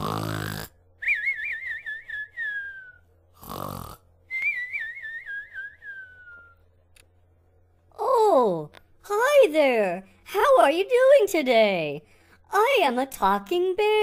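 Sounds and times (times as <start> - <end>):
cartoon snoring and whistling: 0.0 - 6.5.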